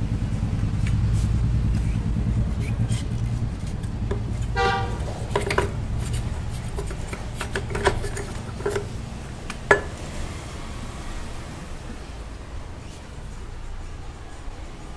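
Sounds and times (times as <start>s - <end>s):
low background rumble: 0.0s - 7.6s
metal parts clinking: 3.7s - 9.0s
vehicle horn toot: 4.4s - 5.4s.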